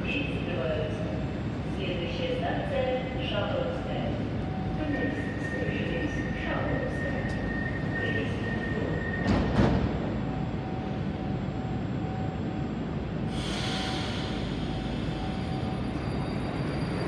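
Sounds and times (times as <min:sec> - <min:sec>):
train doors shutting: 0:07.0 - 0:10.6, 0:13.3 - 0:17.0
train air hiss: 0:13.3 - 0:15.6.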